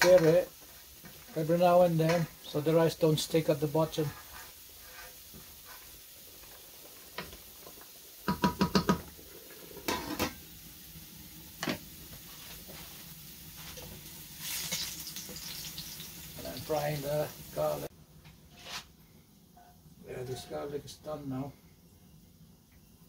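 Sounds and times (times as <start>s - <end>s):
spoon stirring in pan: 13.6s - 16.0s.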